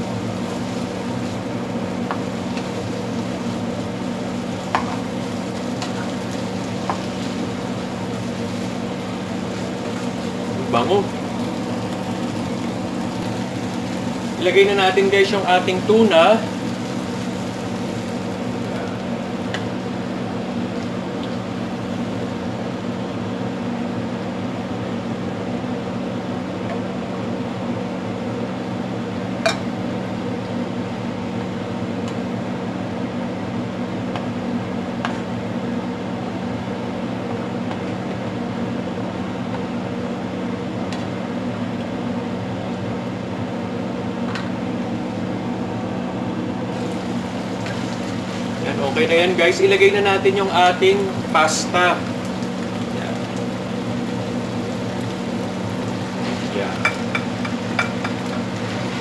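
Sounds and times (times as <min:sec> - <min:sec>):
steady mechanical hum: 0:00.0 - 0:59.0.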